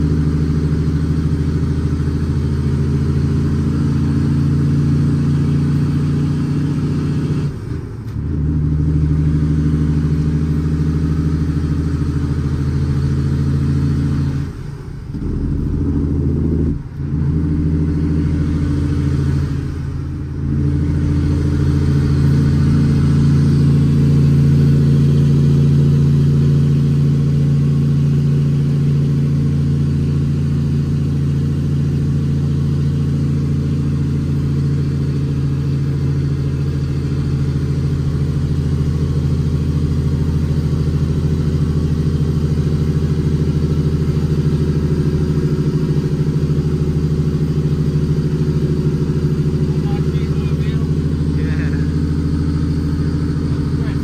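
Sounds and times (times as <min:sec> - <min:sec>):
diesel truck engine under load: 0:00.0 - 0:54.0.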